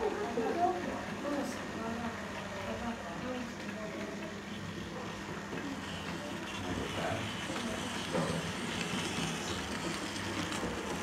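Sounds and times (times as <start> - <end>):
model train humming: 4.0 - 11.0.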